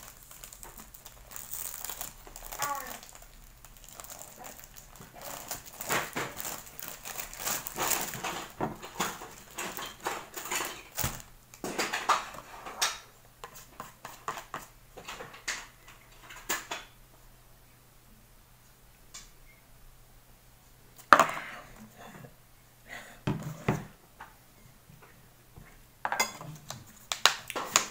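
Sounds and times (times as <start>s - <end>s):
plastic wrapper rustling: 0.0s - 12.5s.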